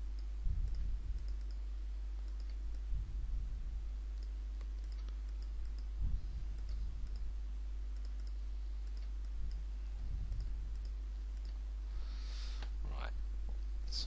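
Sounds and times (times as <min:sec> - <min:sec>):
dull low thumps: 0:00.0 - 0:01.3, 0:02.6 - 0:04.1, 0:05.5 - 0:07.5, 0:09.3 - 0:10.8
steady low hum: 0:00.0 - 0:14.0
computer mouse clicking: 0:00.1 - 0:01.6, 0:02.2 - 0:02.8, 0:04.2 - 0:11.6.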